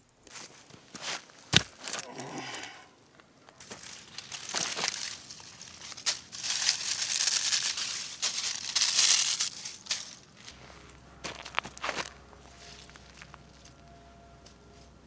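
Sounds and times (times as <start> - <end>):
crunches on gravel: 0.2 - 14.9
dry leaves crumpled and crushed: 3.5 - 15.0.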